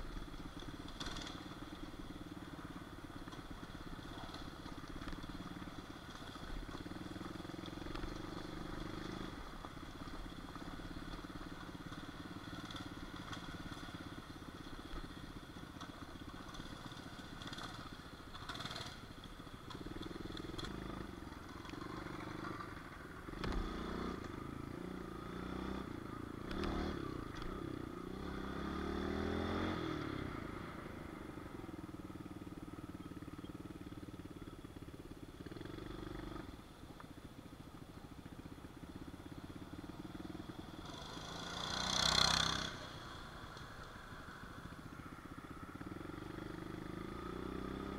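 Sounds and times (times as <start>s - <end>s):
pit bike engine revving: 23.3s - 30.2s, 40.7s - 43.2s.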